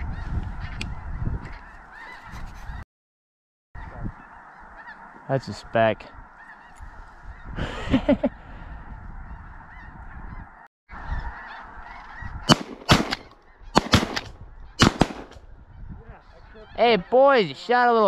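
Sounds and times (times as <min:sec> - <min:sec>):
flock of geese calling: 0:00.0 - 0:02.8, 0:03.8 - 0:12.6, 0:13.4 - 0:13.8, 0:15.6 - 0:18.0
shotguns firing: 0:12.5 - 0:15.4.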